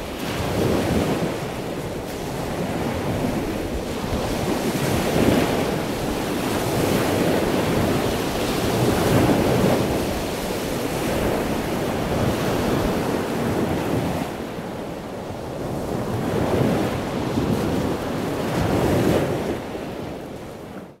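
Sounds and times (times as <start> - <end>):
ocean surf: 0.0 - 20.9
wind: 0.0 - 21.0.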